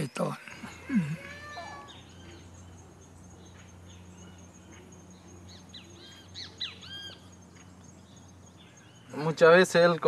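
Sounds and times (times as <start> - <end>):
birds chirping: 0.0 - 10.0
low steady hum: 0.0 - 10.0
quick arched bird calls: 5.7 - 7.8.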